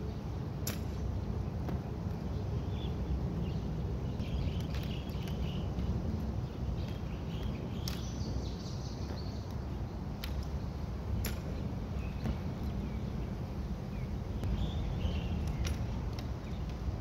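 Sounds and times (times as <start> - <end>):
birds chirping: 0.0 - 17.0
steady low rumble: 0.0 - 17.0.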